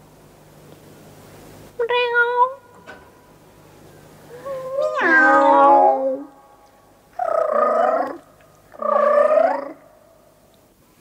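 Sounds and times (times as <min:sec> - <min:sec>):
person imitating cat meow: 0:04.4 - 0:06.3.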